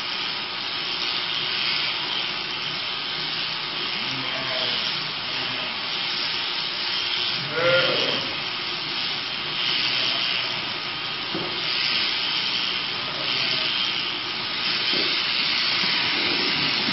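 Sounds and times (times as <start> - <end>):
electric shears running: 0.0 - 16.9
sheep bleating: 7.4 - 8.4.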